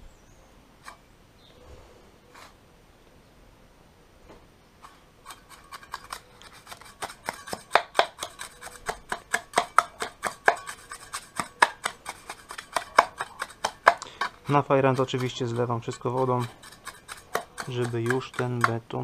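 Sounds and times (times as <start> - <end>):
trowel tapping and scraping: 4.8 - 19.0.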